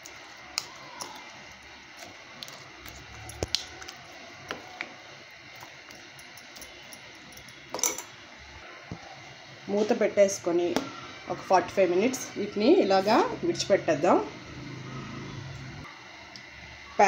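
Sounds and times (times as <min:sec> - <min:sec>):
spoon stirring thick marinade: 0:00.0 - 0:06.6.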